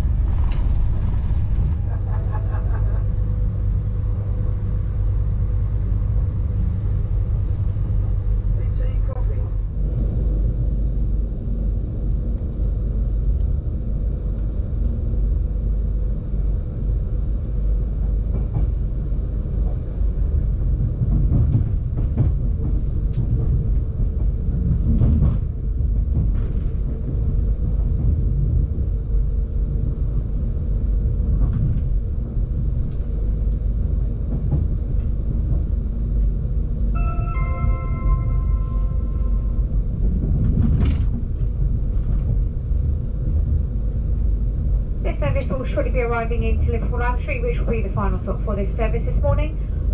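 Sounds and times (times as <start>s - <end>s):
train rumbling: 0.0s - 49.9s
multi-tone chime: 37.0s - 39.7s.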